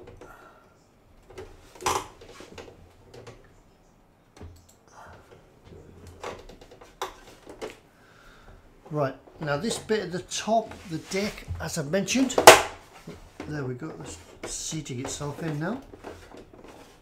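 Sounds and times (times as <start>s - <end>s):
sharp plastic clack: 12.4s - 12.8s.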